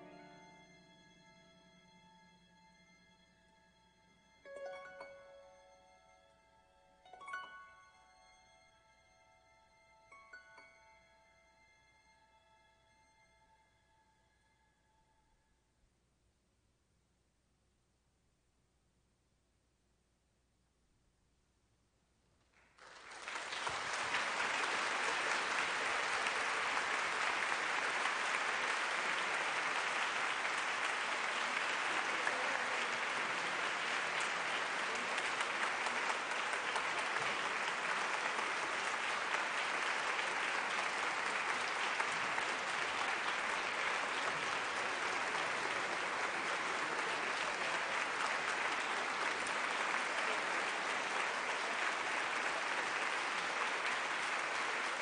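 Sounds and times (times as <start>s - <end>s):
audience applause: 0.0s - 0.5s, 22.6s - 55.0s.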